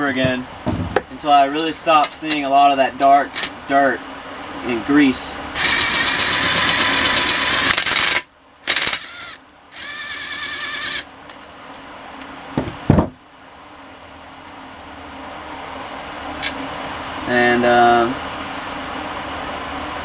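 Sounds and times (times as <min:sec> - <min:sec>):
impact driver whining: 0:05.6 - 0:11.1
heavy thumps: 0:12.5 - 0:13.2.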